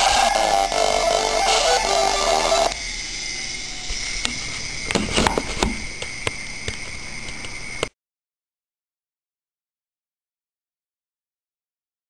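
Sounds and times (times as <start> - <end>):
chiptune music: 0.0 - 2.8
steady high whine: 0.0 - 7.9.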